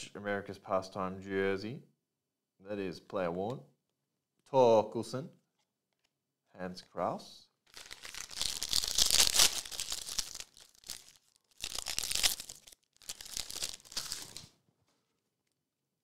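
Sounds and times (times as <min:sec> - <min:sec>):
foil wrapper tearing and crinkling: 0:07.7 - 0:14.5.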